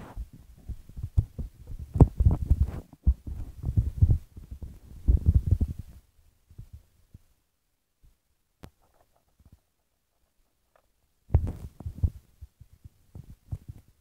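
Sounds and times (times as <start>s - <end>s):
low rumbling and thumps: 0.0s - 6.9s.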